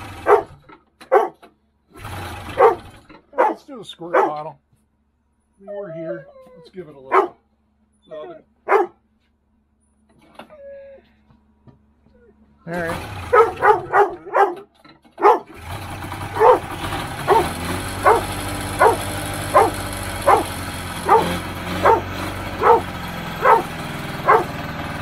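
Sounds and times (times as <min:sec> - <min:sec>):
snowmobile engine running: 0:00.0 - 0:01.3, 0:02.0 - 0:03.6, 0:12.7 - 0:14.6, 0:15.2 - 0:25.0
dog barking: 0:00.2 - 0:01.4, 0:02.5 - 0:04.5, 0:07.1 - 0:07.4, 0:08.6 - 0:09.0, 0:13.2 - 0:15.6, 0:16.4 - 0:16.7, 0:17.3 - 0:24.6.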